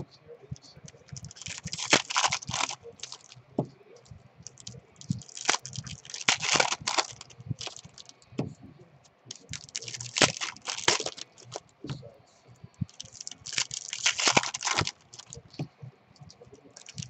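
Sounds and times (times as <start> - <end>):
foil wrapper crinkling: 0.9 - 3.4, 4.5 - 8.1, 9.3 - 11.6, 12.9 - 15.4, 16.8 - 17.0.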